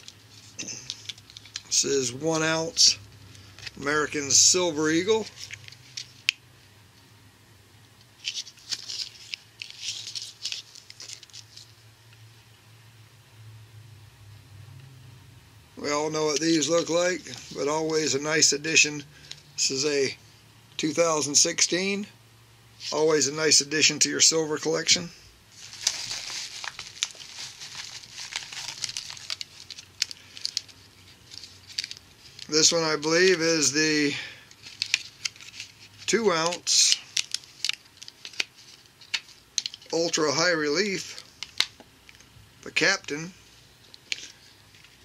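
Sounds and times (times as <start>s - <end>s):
plastic sleeve crinkling: 0.0s - 6.4s, 8.2s - 11.8s, 25.5s - 40.2s, 41.2s - 42.3s, 43.8s - 45.0s.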